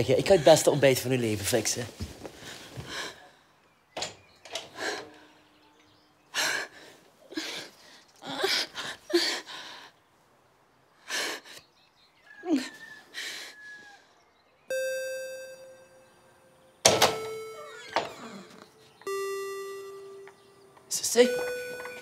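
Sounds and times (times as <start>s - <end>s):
bell-like chime tones: 14.7s - 18.4s, 19.0s - 22.0s.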